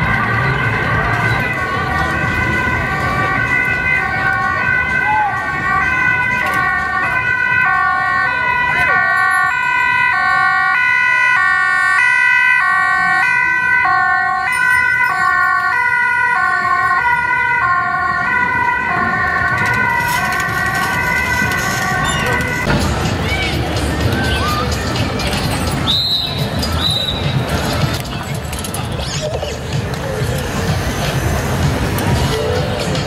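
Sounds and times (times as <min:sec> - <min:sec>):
two-tone ambulance siren: 0:00.0 - 0:22.8
street crowd hubbub: 0:00.0 - 0:33.0.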